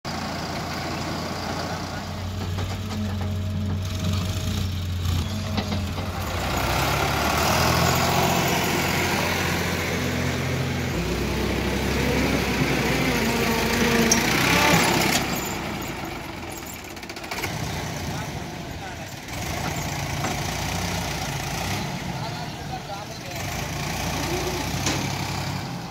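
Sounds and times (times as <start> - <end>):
diesel engines running: 0.1 - 25.9
people talking: 18.0 - 19.3, 22.0 - 25.2.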